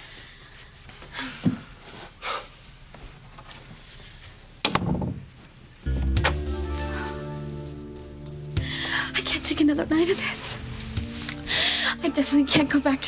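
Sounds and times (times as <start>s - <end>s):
door thud: 4.6s - 5.3s
background music: 5.8s - 13.0s.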